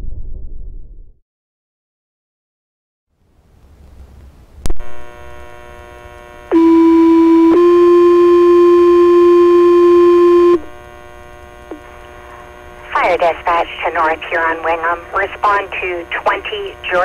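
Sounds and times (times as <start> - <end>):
radio hiss and hum: 4.6 - 17.0
radio channel click: 11.7 - 12.0.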